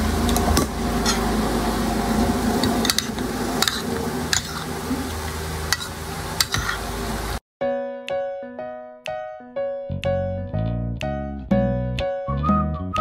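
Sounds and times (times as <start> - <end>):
cutlery clicking on a ceramic plate: 2.8 - 4.6.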